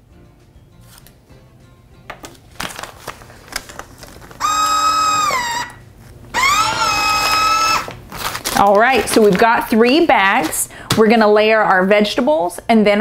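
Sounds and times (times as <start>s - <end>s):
plastic bag crinkling: 2.3s - 10.7s
vacuum sealer motor whine: 4.2s - 8.7s.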